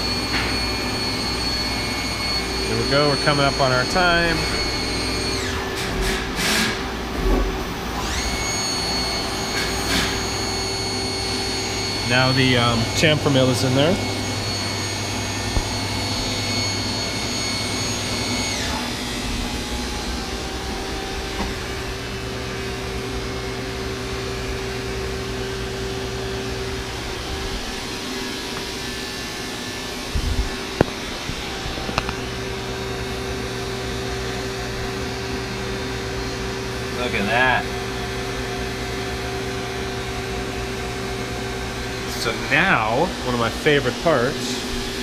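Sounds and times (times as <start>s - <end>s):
machine humming: 0.0s - 45.0s
spindle whine winding down: 0.0s - 45.0s.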